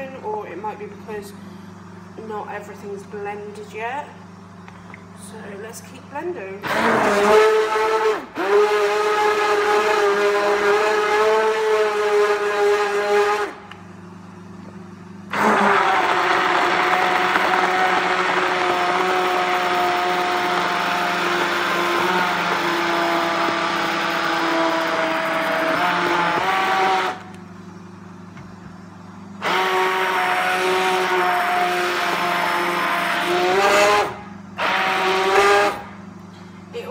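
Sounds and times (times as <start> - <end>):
stick blender running: 6.5 - 13.8, 15.2 - 27.6, 28.3 - 36.1.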